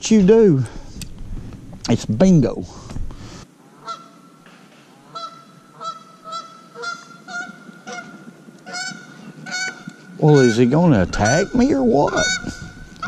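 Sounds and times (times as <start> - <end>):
goose honking: 3.7 - 13.0.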